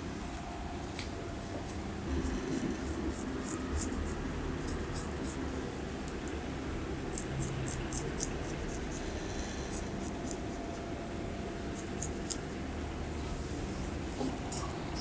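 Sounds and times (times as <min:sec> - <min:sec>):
low room hum: 0:00.0 - 0:15.0
razor scraping skin: 0:02.1 - 0:05.4, 0:07.1 - 0:10.8, 0:11.7 - 0:12.5.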